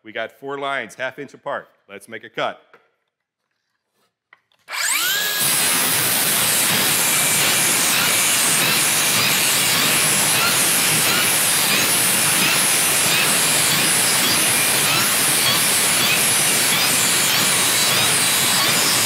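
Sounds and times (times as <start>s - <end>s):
circular saw cutting board: 4.6s - 19.0s.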